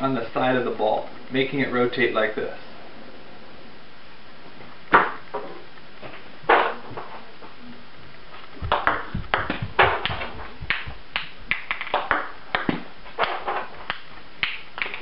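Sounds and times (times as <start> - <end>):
ball bouncing on table: 8.6 - 15.0.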